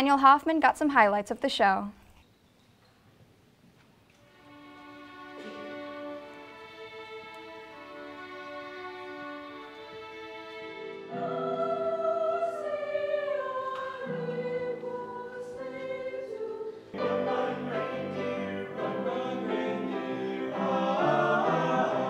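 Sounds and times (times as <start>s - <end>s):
instrumental music: 4.1s - 22.0s
choir singing: 5.1s - 22.0s.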